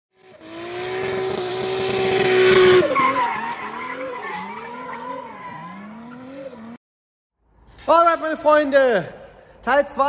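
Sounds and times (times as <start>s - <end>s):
car engine revving: 0.2s - 6.8s.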